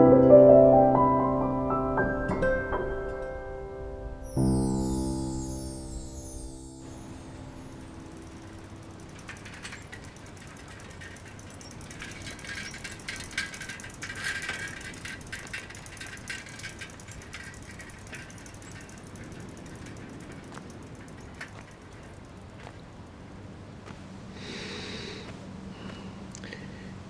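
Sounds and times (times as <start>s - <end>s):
bicycle ticking and clicking: 6.8s - 23.4s.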